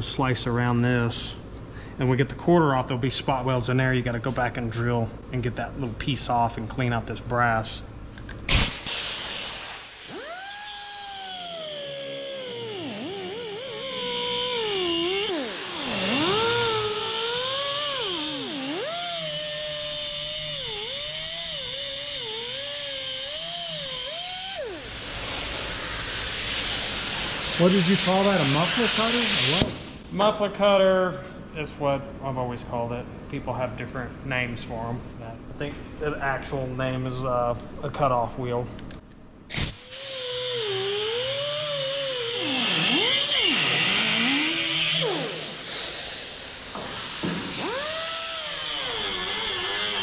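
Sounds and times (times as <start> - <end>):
rush of hissing air: 8.5 - 10.2, 24.8 - 29.7, 45.5 - 47.6
cutoff wheel whining through metal: 9.9 - 25.6, 39.5 - 50.0.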